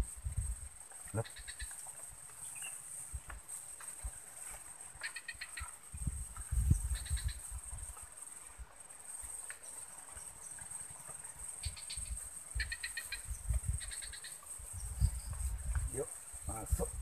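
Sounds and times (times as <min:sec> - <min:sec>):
rapid insect chirps: 0:00.0 - 0:17.0
microphone bumps and rumbles: 0:05.9 - 0:08.0, 0:12.6 - 0:13.9, 0:14.6 - 0:17.0.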